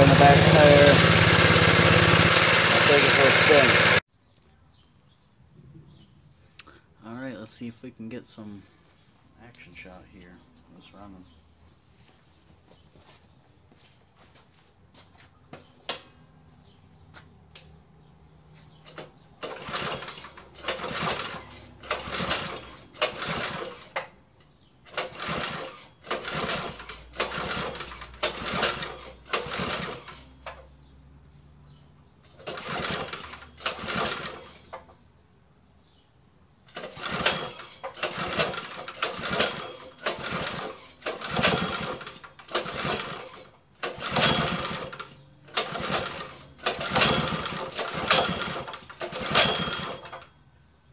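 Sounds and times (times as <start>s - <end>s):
mini bike engine revving: 0.0s - 4.0s, 18.9s - 24.1s, 24.9s - 30.6s, 32.3s - 34.8s, 36.7s - 50.3s.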